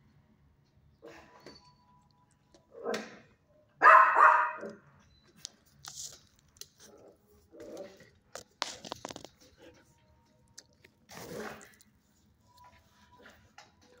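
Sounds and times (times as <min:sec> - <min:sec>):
puppy barking: 0:03.8 - 0:04.8.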